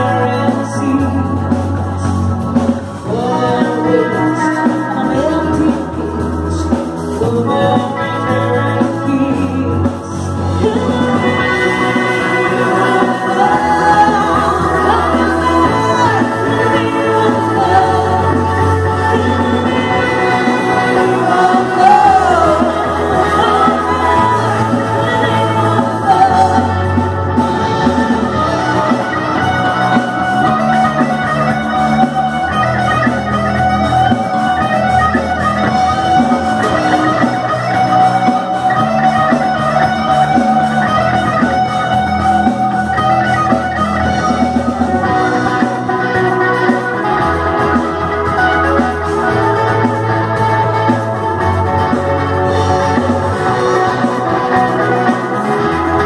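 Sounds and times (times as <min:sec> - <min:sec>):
woman singing: 0:00.0 - 0:35.0
bass guitar: 0:00.0 - 0:56.0
drum kit: 0:00.0 - 0:56.0
electric guitar: 0:00.0 - 0:56.0.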